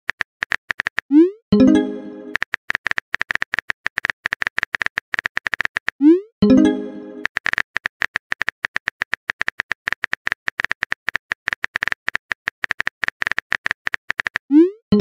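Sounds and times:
phone keyboard clicks: 2.3s - 6.0s, 7.2s - 15.0s.

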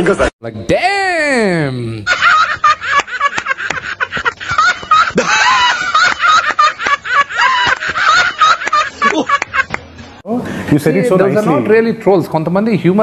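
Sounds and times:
men laughing loudly: 2.0s - 9.8s.

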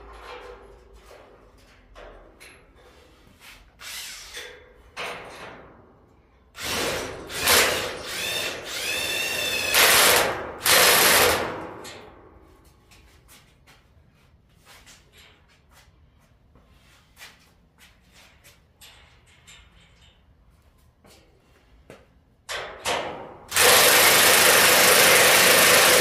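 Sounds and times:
cordless drill running: 6.6s - 11.4s, 23.5s - 26.0s.

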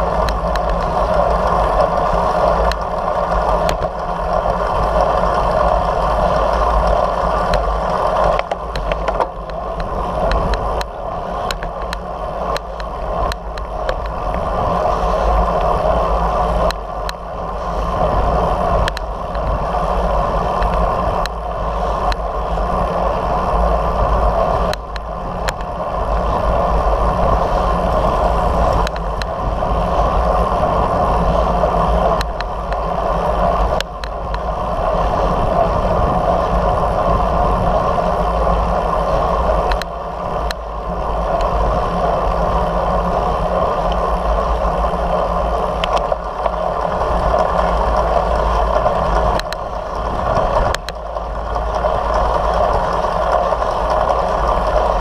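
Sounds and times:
road rumble: 0.0s - 55.0s
wind rush: 0.0s - 55.0s
faint clicks: 1.8s - 14.4s, 18.8s - 19.5s, 39.6s - 40.6s, 45.8s - 55.0s.

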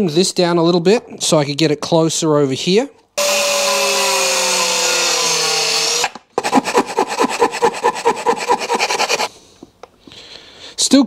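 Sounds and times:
angle grinder cutting metal: 3.2s - 6.6s
hand file rasping metal: 6.4s - 9.3s.

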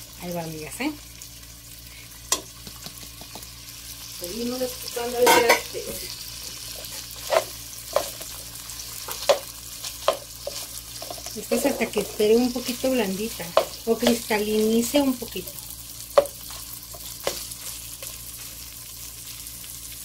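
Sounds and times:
food sizzling in a pan: 0.0s - 20.0s
spatula stirring: 6.8s - 19.4s.

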